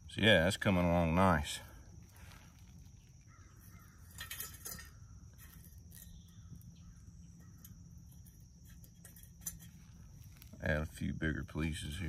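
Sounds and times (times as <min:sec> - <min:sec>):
high insect drone: 0:00.0 - 0:12.0
burning twigs crackling: 0:00.1 - 0:11.2
stick scraping against metal stove: 0:02.2 - 0:10.8.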